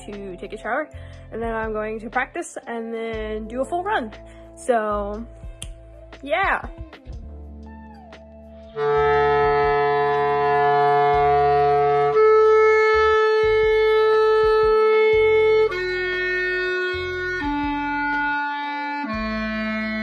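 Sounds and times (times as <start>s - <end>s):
clarinet playing long notes: 8.7s - 20.0s.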